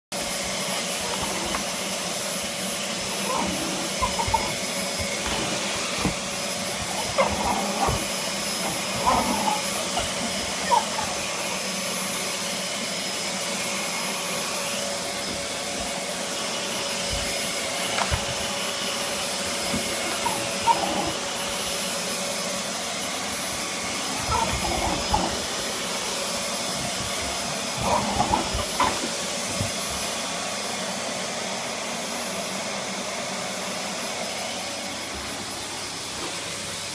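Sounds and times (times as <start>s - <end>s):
vacuum cleaner running: 0.1s - 36.9s
dog barking and growling: 3.0s - 11.6s, 19.7s - 21.6s, 24.0s - 29.7s.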